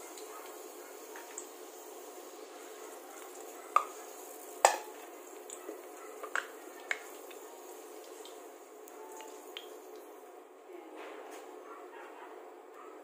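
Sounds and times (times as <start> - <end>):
potato slices sizzling in oil: 0.0 - 10.3.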